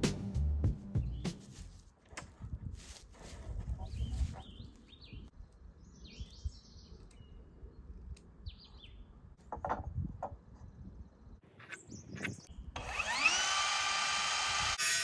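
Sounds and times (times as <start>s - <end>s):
birds chirping: 3.8s - 9.4s, 10.5s - 12.6s.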